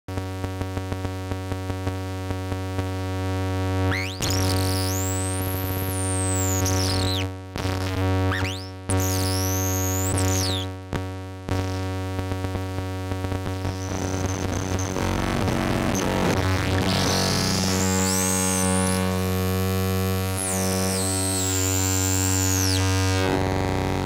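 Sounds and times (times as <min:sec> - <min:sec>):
low buzzing synthesizer drone: 0:12.4 - 0:24.0.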